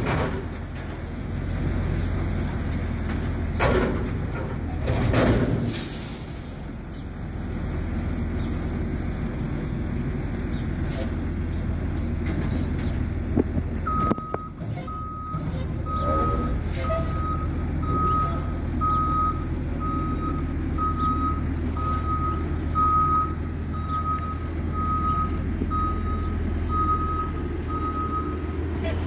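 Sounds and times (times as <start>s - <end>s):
diesel engine running: 0.0s - 29.0s
truck reverse alarm beeping: 13.8s - 29.0s.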